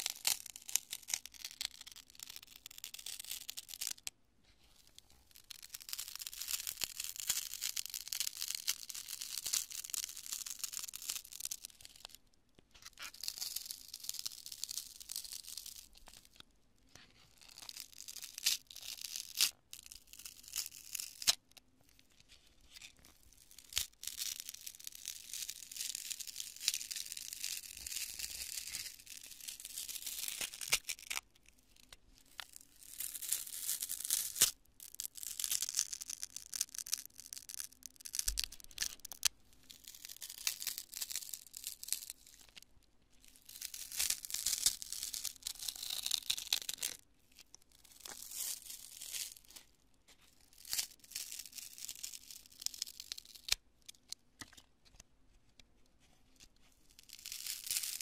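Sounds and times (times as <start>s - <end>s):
foam crunching in hands: 0.0s - 4.0s, 5.4s - 12.1s, 13.0s - 16.1s, 22.8s - 31.2s, 32.4s - 42.5s, 43.4s - 47.0s, 50.5s - 53.6s, 56.9s - 58.0s.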